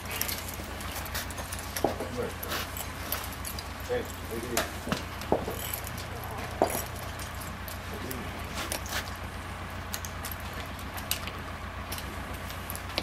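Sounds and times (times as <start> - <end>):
bridle hardware and chain clinking: 0.0 - 9.2
steady low hum: 0.0 - 13.0.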